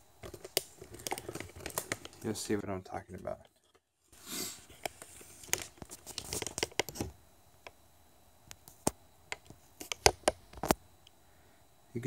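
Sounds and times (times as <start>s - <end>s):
phone handling clicks and crackles: 0.2s - 2.4s, 4.8s - 7.8s, 8.5s - 10.8s.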